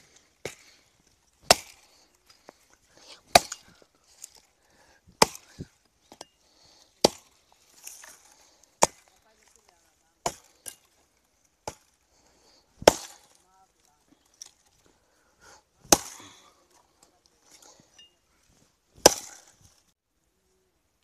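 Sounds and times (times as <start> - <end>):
axe chopping wood: 0.4 - 0.8, 1.4 - 2.0, 3.3 - 4.5, 5.1 - 6.3, 7.0 - 9.2, 10.2 - 11.0, 11.6 - 12.0, 12.8 - 13.4, 15.8 - 16.6, 19.0 - 19.6.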